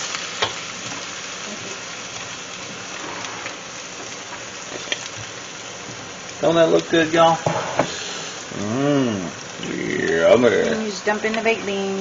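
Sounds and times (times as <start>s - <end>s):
meat sizzling in a skillet: 0.0s - 12.0s.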